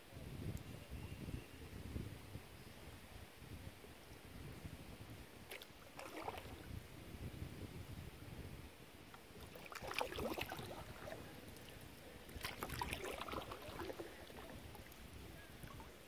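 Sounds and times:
water splashing against a canoe: 5.4s - 6.7s, 9.2s - 16.0s.

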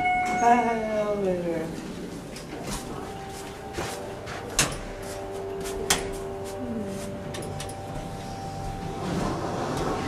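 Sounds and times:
soft footsteps: 1.7s - 10.0s.

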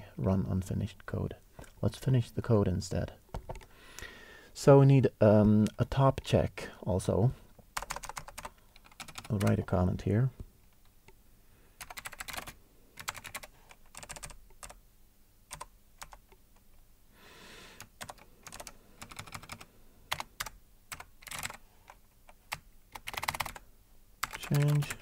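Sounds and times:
keyboard typing: 7.8s - 9.6s, 11.8s - 14.8s, 15.5s - 16.3s, 17.8s - 23.6s, 24.2s - 25.0s.

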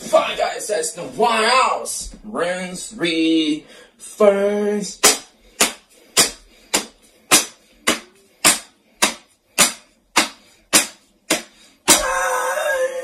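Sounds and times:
sharp smacks of striking: 5.0s - 12.2s.

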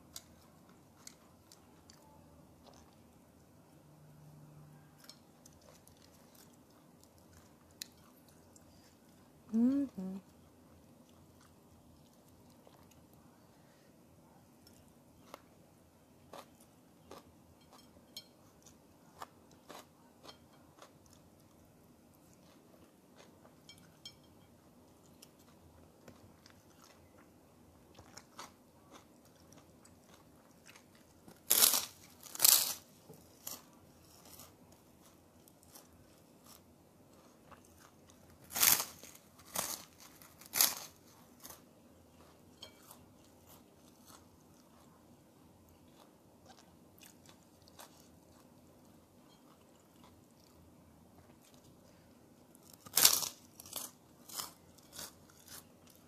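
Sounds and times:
quiet chewing: 0.0s - 3.5s, 4.6s - 31.5s, 33.1s - 56.0s
cracker crunching: 27.9s - 45.1s, 51.2s - 56.0s.

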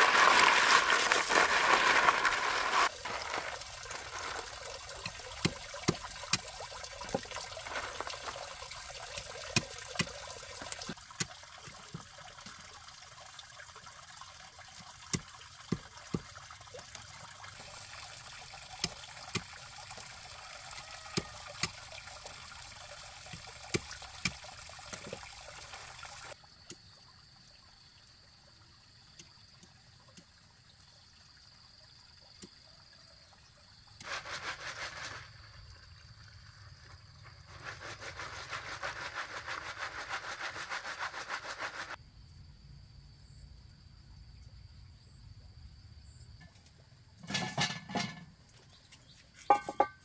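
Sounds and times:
rustling noise: 0.0s - 4.5s, 34.0s - 35.5s, 37.3s - 42.0s
water trickling: 0.0s - 34.0s.

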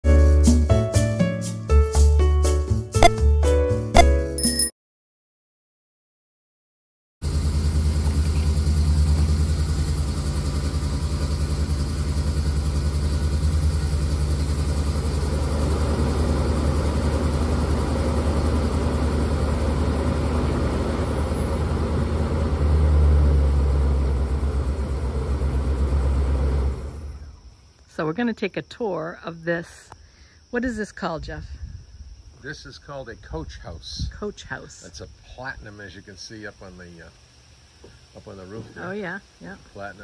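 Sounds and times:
low mechanical drone: 7.3s - 27.5s.

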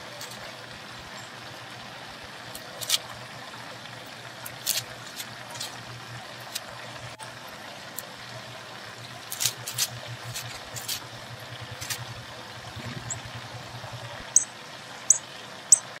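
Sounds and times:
songbird chip notes: 11.7s - 14.5s, 15.1s - 16.0s.

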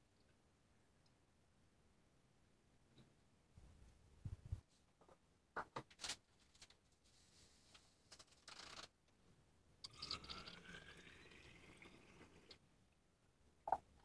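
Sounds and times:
liquid trickling into bottle: 9.8s - 12.6s.

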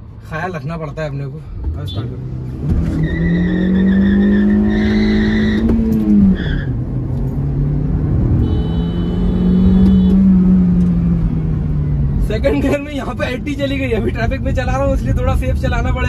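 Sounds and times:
car engine revving hard: 2.1s - 6.4s.

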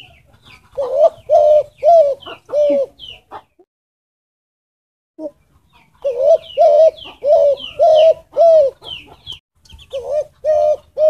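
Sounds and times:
dove cooing: 0.0s - 3.5s, 6.0s - 11.0s.

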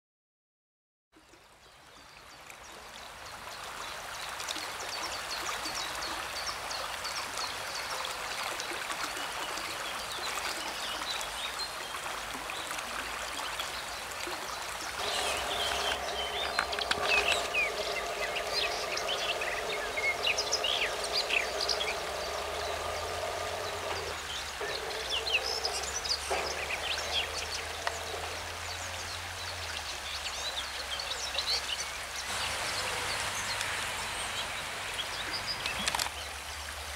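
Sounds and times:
river water rushing: 10.0s - 36.9s
small birds chirping: 14.8s - 36.4s
steady multi-tone hum: 15.0s - 28.7s.

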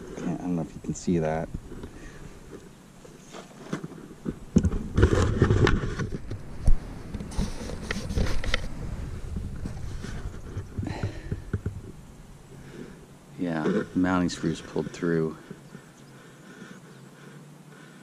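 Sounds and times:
camera handling noise: 3.7s - 8.8s.

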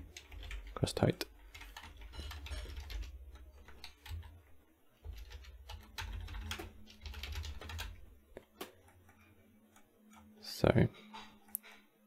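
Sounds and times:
keyboard typing clicks: 1.5s - 4.3s.

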